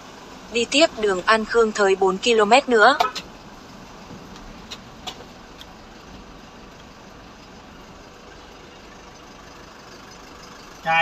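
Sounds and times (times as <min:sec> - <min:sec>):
truck engine and road noise: 0:00.0 - 0:11.0.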